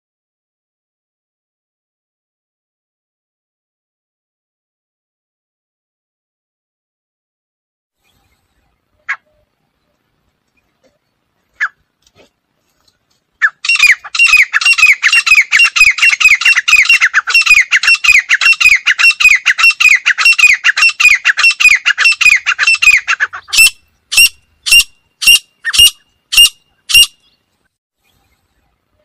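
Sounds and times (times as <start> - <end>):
francolin calling: 13.4 - 29.0.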